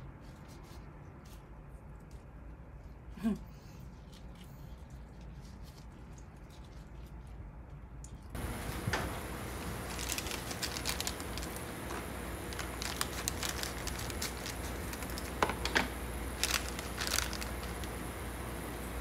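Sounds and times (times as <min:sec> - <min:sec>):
crinkling and clicking handling noises: 0:04.1 - 0:19.0
steady background hiss: 0:08.4 - 0:19.0.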